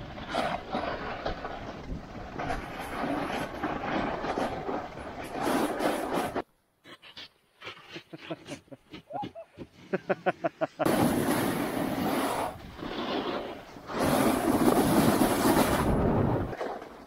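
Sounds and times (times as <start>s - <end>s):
snow hiss of skiing: 10.8s - 16.5s.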